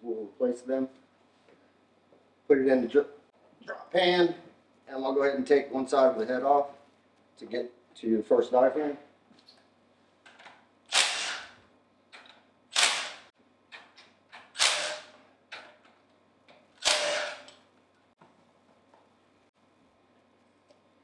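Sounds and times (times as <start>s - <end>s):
impact driver hammering: 11.0s - 11.5s, 14.6s - 15.2s, 16.8s - 17.5s.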